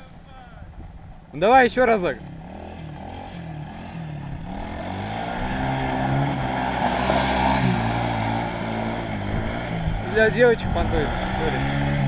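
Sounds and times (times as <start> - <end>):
quad bike engine revving: 1.9 - 12.0.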